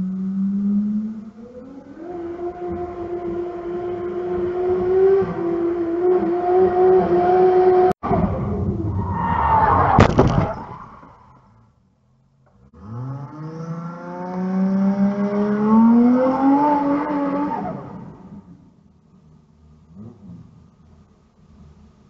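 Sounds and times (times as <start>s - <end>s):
car engine at high revs: 0.0s - 8.8s, 12.4s - 22.0s
car crash bang: 8.0s - 11.4s.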